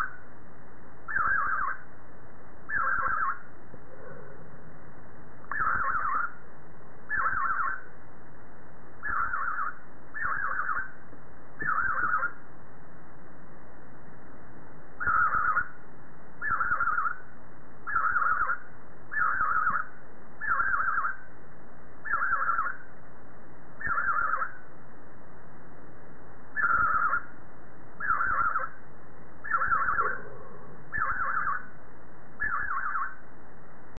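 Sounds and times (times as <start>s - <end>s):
budgerigar warbling calls: 1.1s - 1.8s, 2.7s - 3.4s, 5.5s - 6.4s, 7.1s - 7.9s, 9.0s - 11.0s, 11.6s - 12.4s, 15.0s - 15.8s, 16.4s - 17.2s, 17.8s - 21.3s, 22.0s - 22.8s, 23.8s - 24.6s, 26.5s - 27.3s, 28.0s - 28.8s, 29.4s - 31.7s, 32.4s - 33.2s.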